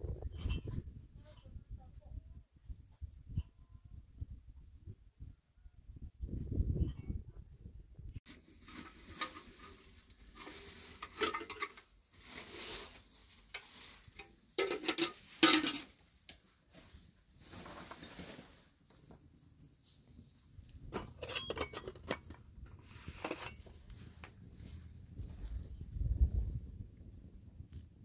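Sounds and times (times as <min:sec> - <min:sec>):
knocking and clatter of objects: 0:08.3 - 0:11.9, 0:13.5 - 0:16.0, 0:20.9 - 0:23.8.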